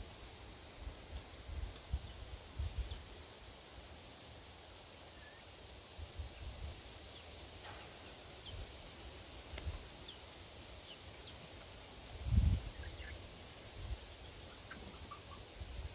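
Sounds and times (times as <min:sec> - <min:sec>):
steady hiss: 0:00.0 - 0:15.9
faint high bird chirps: 0:05.1 - 0:05.5, 0:14.2 - 0:15.5.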